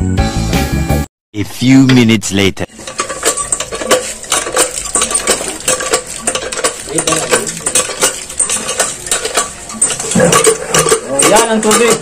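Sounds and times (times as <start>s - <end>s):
hand pump clanking and rattling: 2.7s - 12.0s.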